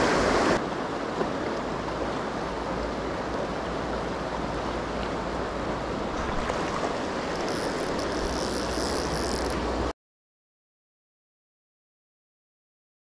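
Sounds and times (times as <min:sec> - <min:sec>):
river rushing over stones: 0:00.0 - 0:09.9.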